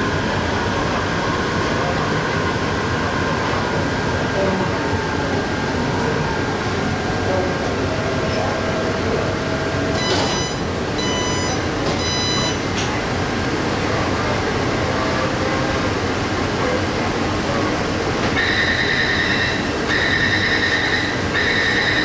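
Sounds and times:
metro train running noise: 0.0s - 22.0s
high-pitched ringing tones: 10.0s - 12.6s.

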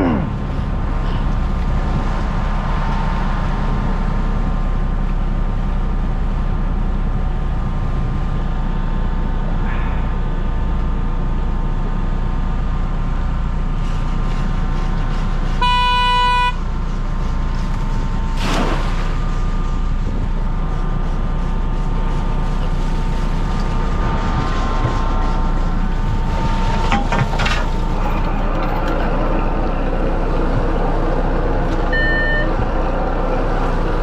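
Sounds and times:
boat engine running: 0.0s - 34.0s
horn blast: 15.6s - 16.6s
steady high whine: 15.6s - 34.0s.

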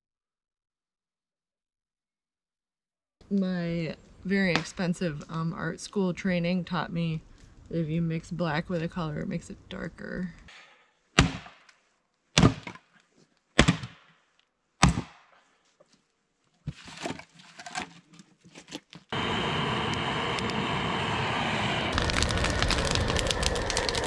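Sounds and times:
axe splitting firewood: 11.2s - 11.8s, 12.4s - 12.9s, 13.6s - 14.1s, 14.8s - 15.3s
campfire burning and crackling: 19.1s - 24.0s.

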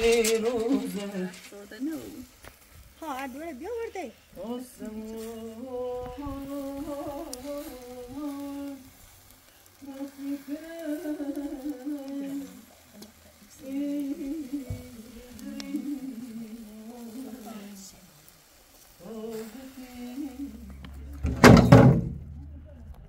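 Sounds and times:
person humming a slow tune: 4.4s - 9.1s, 9.7s - 17.9s, 19.0s - 21.1s.

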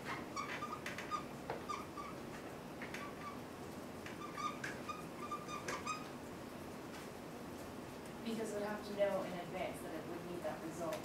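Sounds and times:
marker squeaking on whiteboard: 0.0s - 3.4s, 4.1s - 6.1s.

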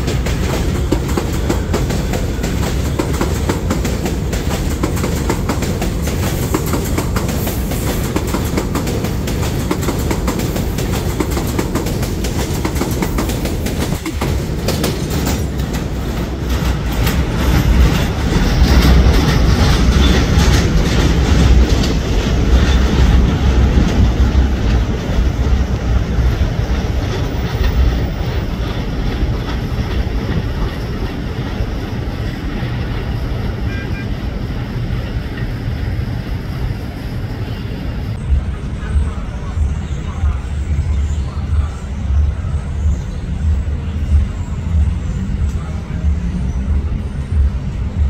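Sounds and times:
subway train rumbling on rails: 0.0s - 48.0s.

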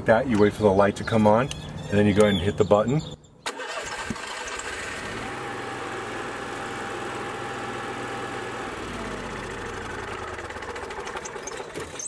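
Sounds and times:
generator engine running: 3.5s - 12.0s.

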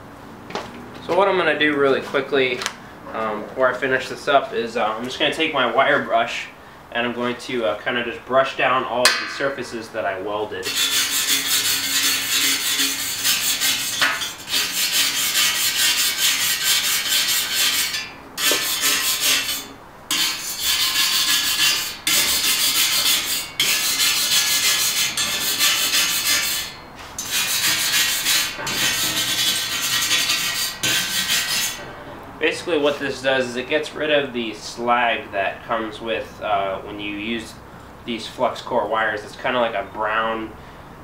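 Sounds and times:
wire brush scrubbing metal: 10.6s - 31.9s.

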